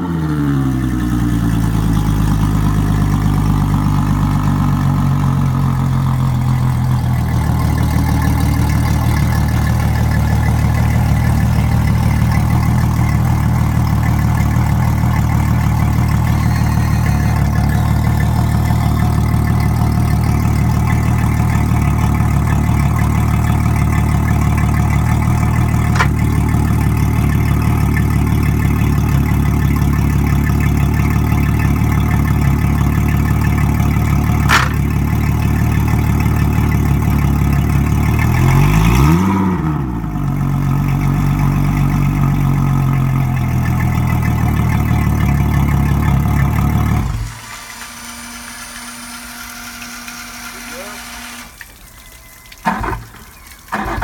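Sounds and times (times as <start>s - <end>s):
outboard motor idling: 0.0s - 54.0s
sharp click: 34.5s - 34.9s.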